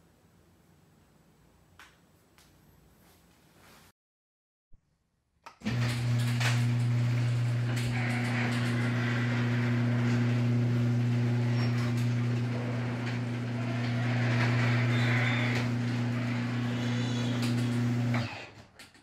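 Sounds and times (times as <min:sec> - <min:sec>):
garage door opener motor hum: 0:05.5 - 0:19.0
garage door rolling up: 0:05.6 - 0:19.0.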